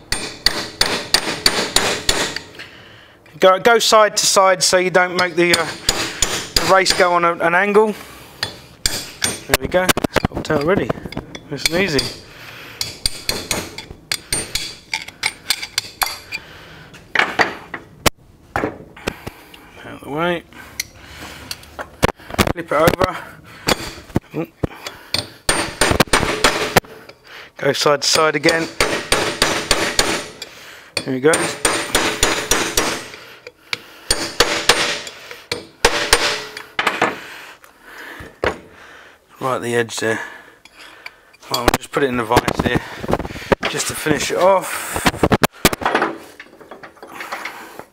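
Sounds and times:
hammer tapping metal drift: 10.2 - 16.4
hammer striking metal drift: 34.1 - 36.6
tools clattering on workbench: 45.7 - 47.6.

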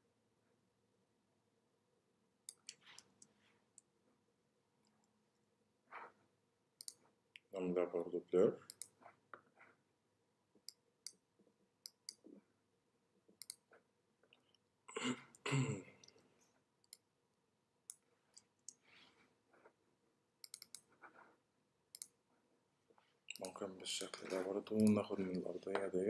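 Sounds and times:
computer mouse clicks: 2.5 - 3.9, 6.8 - 7.5, 8.7 - 9.1, 11.8 - 12.4, 13.4 - 13.8, 20.4 - 21.2, 21.9 - 22.2, 23.3 - 25.0.

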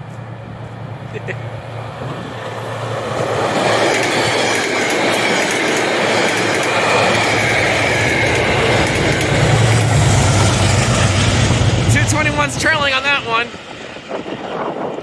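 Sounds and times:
train wheels clattering over rails: 1.9 - 15.0.

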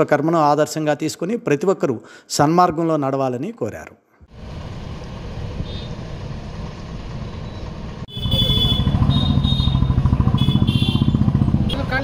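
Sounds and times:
low rumble of traffic: 4.3 - 12.0
throbbing engine rumble: 4.3 - 12.0.

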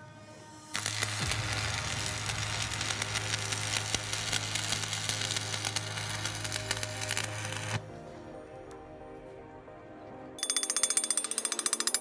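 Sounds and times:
welding arc crackling: 0.7 - 7.8.

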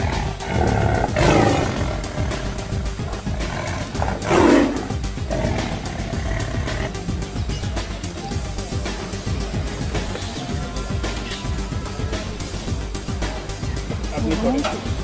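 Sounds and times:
lion roaring: 0.0 - 7.2
background music: 0.0 - 15.0.

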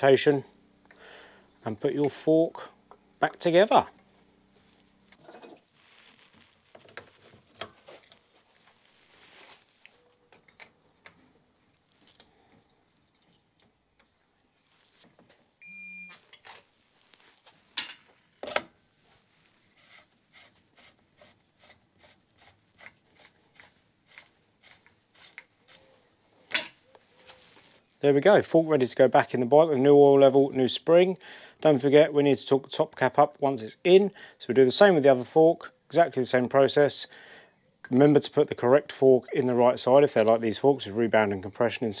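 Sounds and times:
short beep: 15.6 - 16.2.

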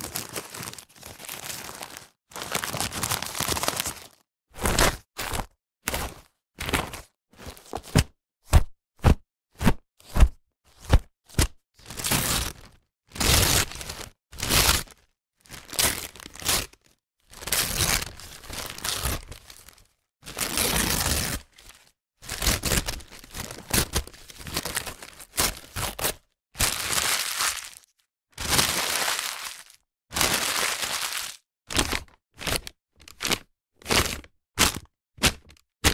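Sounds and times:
paper bag crumpling: 0.0 - 4.2, 26.6 - 27.8, 28.4 - 31.4.

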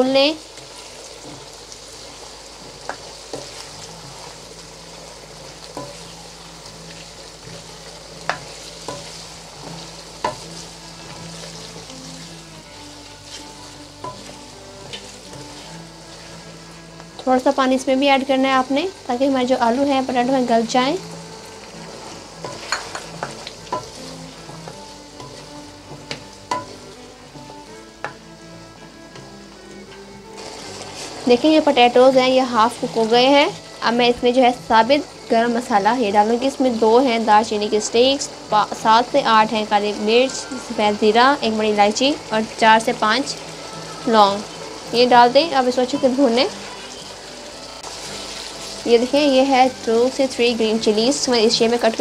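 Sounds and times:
food sizzling in oil: 0.0 - 52.0
spatula scraping a pan: 0.5 - 17.3, 20.1 - 27.5, 29.2 - 33.8, 45.9 - 50.0.

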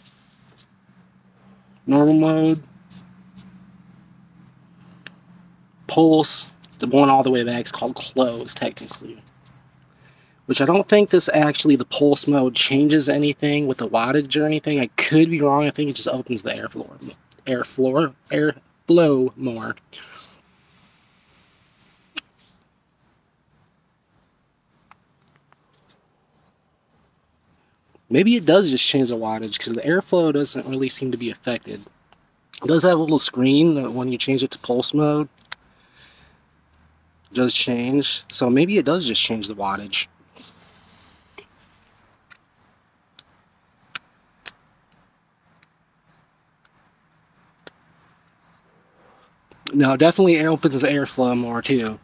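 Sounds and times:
cricket chirping: 0.0 - 14.1, 15.7 - 52.0
faint vape draw hiss: 20.0 - 22.6, 40.4 - 42.2
sharp clicks: 35.3 - 35.7, 43.2 - 44.6.

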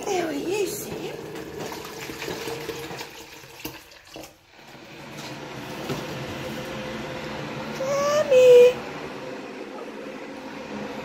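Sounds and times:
tap water running into sink: 0.0 - 6.4.

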